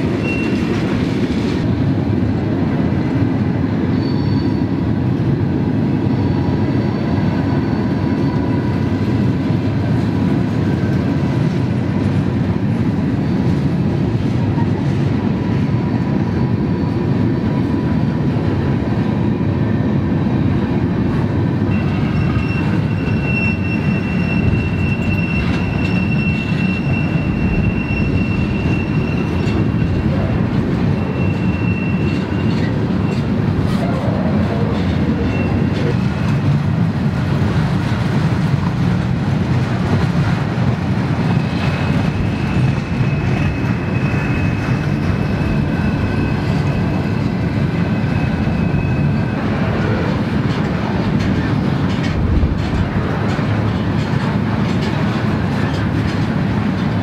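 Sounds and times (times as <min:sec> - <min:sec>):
train wheels rumbling and clacking: 0:00.0 - 0:57.0
high-pitched flange squeal: 0:21.7 - 0:30.3.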